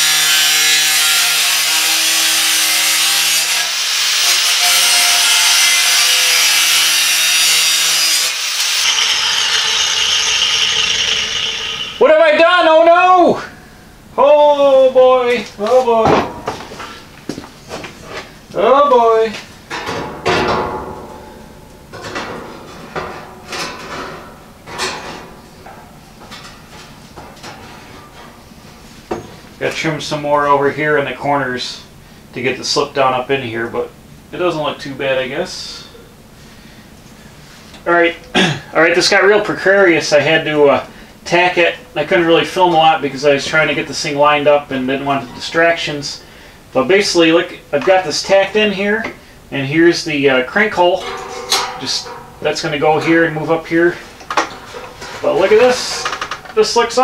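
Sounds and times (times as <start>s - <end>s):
angle grinder cutting steel: 0.0s - 12.0s
metal scraping and clanking: 19.7s - 29.5s, 50.5s - 57.0s.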